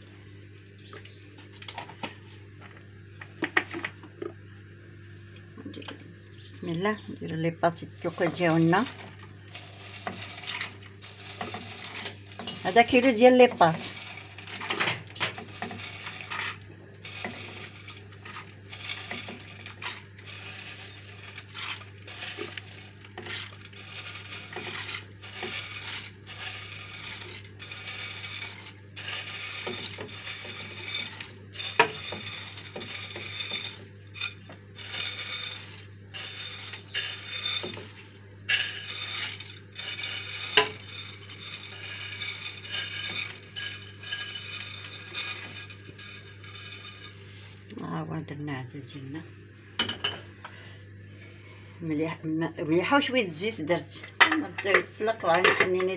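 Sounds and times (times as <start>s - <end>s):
dry pasta rattling into pot: 8.0s - 47.7s.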